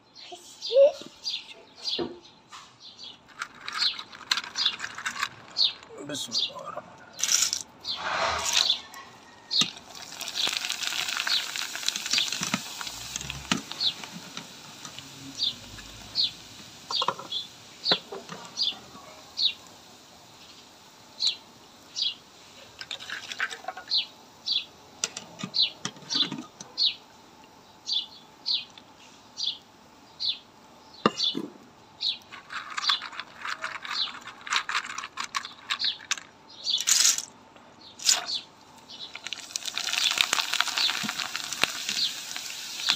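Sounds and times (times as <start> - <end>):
food sizzling in hot oil: 9.5 - 24.0, 39.1 - 42.9.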